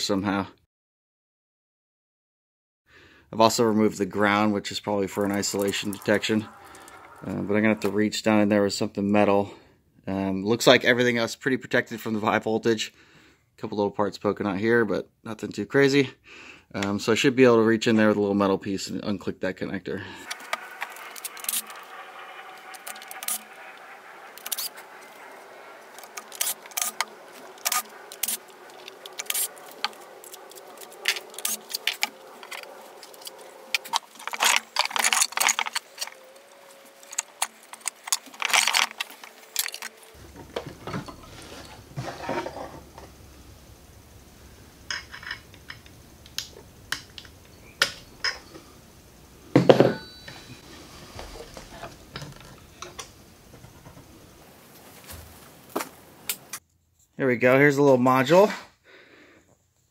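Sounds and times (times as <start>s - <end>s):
metal clank: 49.5s - 50.8s.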